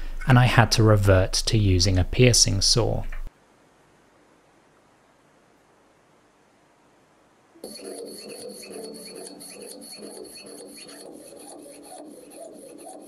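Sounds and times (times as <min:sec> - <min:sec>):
saw blade rasping through metal: 0:07.6 - 0:13.0.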